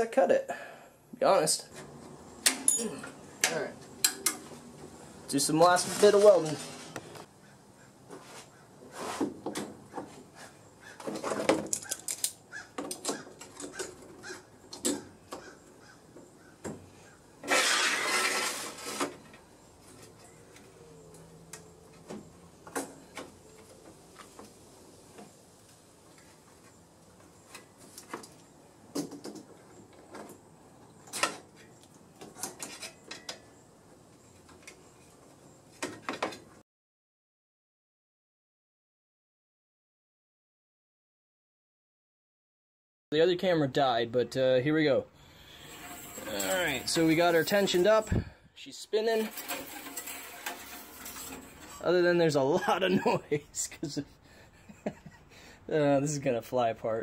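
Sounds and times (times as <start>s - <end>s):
rasping scrape: 5.6s - 7.1s, 8.2s - 9.3s, 17.4s - 19.2s, 45.3s - 48.2s, 49.0s - 52.3s.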